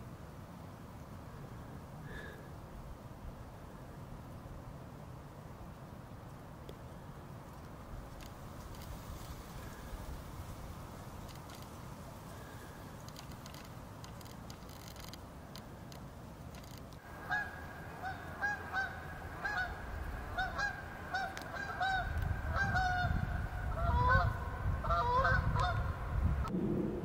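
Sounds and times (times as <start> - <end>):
goose honking: 17.1 - 26.0
low rumble: 26.0 - 27.0.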